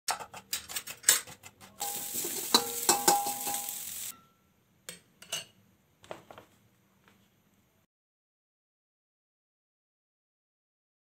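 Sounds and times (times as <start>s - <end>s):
metal spatula clanking and scraping: 0.1s - 4.4s, 5.2s - 5.6s
food sizzling in a pan: 1.8s - 4.2s.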